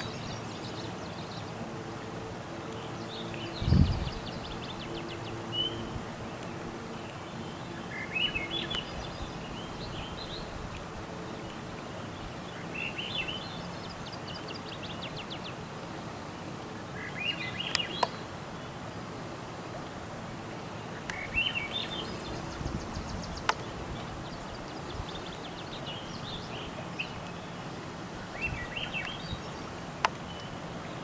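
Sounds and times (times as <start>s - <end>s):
outdoor background noise: 0.0s - 31.0s
songbird singing with trill: 2.7s - 10.6s, 11.3s - 15.6s, 17.0s - 18.2s, 20.9s - 27.6s, 28.3s - 31.0s.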